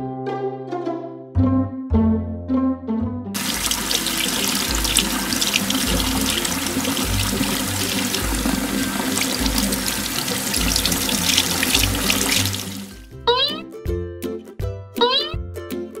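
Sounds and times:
tap water splashing into sink: 0:03.4 - 0:13.0.

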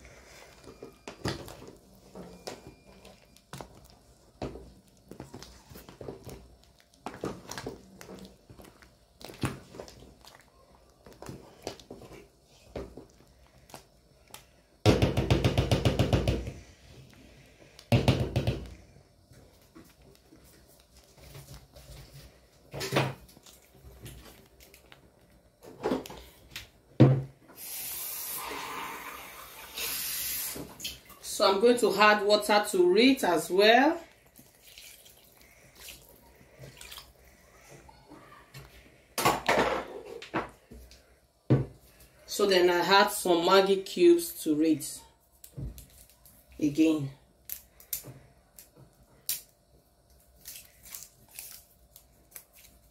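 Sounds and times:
spoon stirring thick soup: 0:00.0 - 0:13.9
water pouring and splashing: 0:34.4 - 0:37.1.

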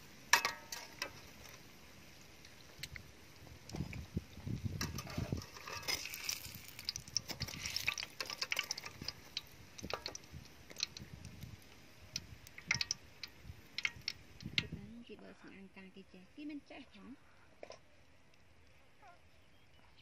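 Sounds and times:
frying oil crackling: 0:00.0 - 0:15.2
metal tongs clicking and scraping: 0:04.8 - 0:09.2, 0:12.6 - 0:13.0.

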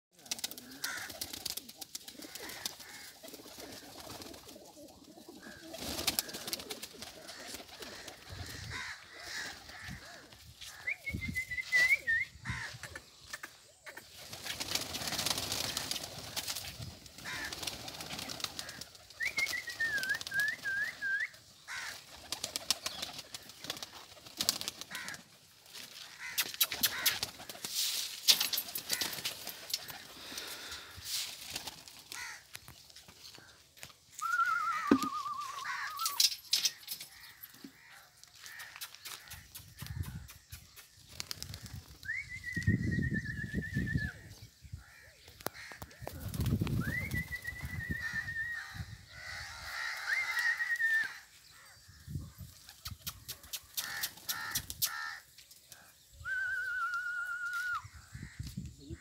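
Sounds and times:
wings flapping: 0:00.2 - 0:10.8, 0:13.2 - 0:32.4, 0:34.2 - 0:37.5, 0:40.9 - 0:42.7, 0:45.6 - 0:48.2, 0:52.6 - 0:55.2
pigeons cooing: 0:00.2 - 0:16.4, 0:26.2 - 0:30.9, 0:34.2 - 0:36.7
small bird whistling: 0:34.2 - 0:36.3.

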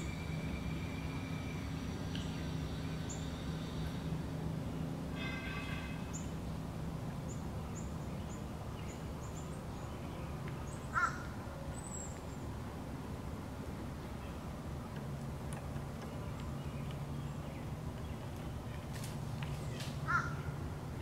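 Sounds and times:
steady low hum: 0:00.0 - 0:21.0
wild birds calling: 0:07.3 - 0:12.4, 0:15.6 - 0:20.8.

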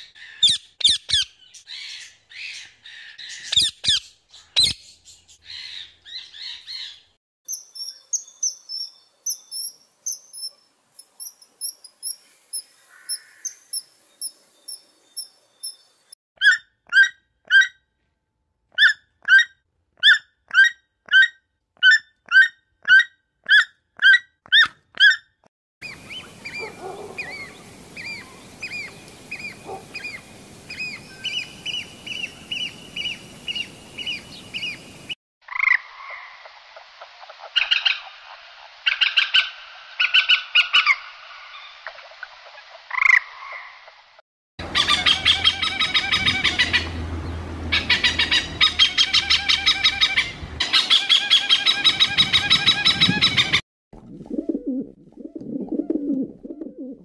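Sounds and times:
squawking calls: 0:11.6 - 0:13.8, 0:25.8 - 0:35.2, 0:44.6 - 0:47.0, 0:47.7 - 0:53.6
pigeons cooing: 0:25.8 - 0:34.7, 0:47.7 - 0:57.0.

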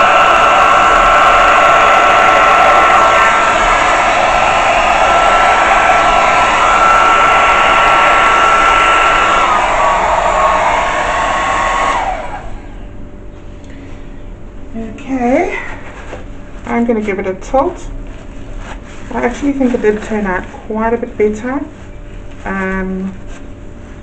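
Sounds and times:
hair dryer running: 0:00.0 - 0:12.8.

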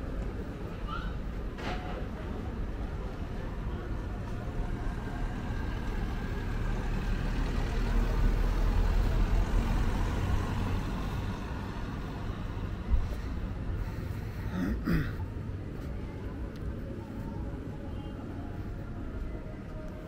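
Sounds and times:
vehicle engine passing by: 0:04.7 - 0:12.8.

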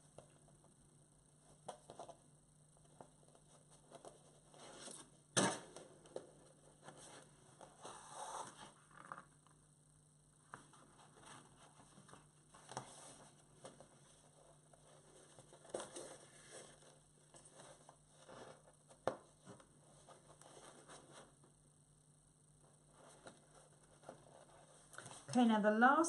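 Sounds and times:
rustling paper pages: 0:10.5 - 0:21.4, 0:22.7 - 0:25.3.

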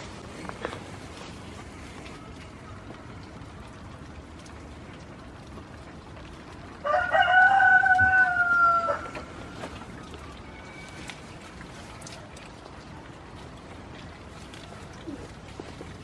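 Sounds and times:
rooster crowing: 0:06.8 - 0:09.3.

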